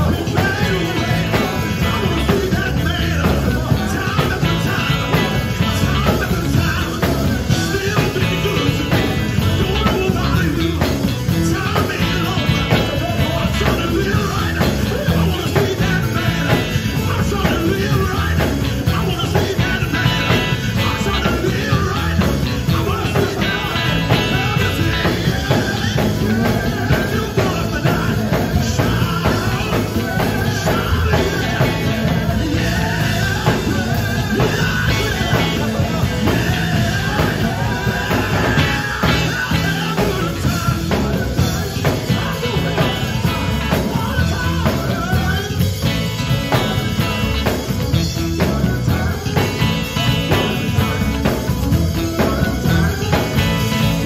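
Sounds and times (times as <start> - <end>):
gospel band playing: 0.0 - 54.0
lead and backing vocals: 0.0 - 54.0.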